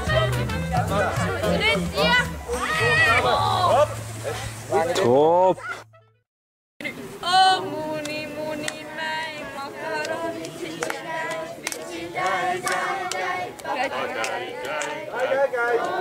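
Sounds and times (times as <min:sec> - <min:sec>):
group singing unaccompanied: 0:00.0 - 0:04.0, 0:07.2 - 0:16.0.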